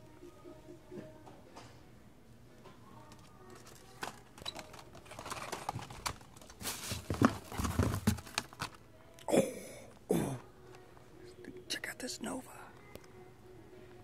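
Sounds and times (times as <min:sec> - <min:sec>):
plastic packs clicking and rustling: 0:03.1 - 0:08.8.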